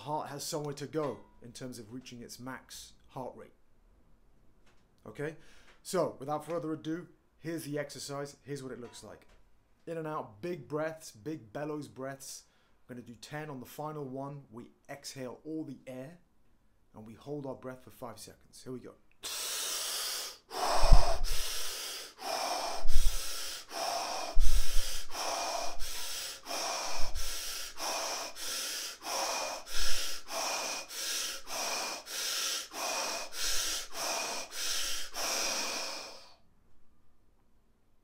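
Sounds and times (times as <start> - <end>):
rapid forceful mouth breathing: 19.2 - 36.4
breath thumping on microphone: 20.6 - 30.8.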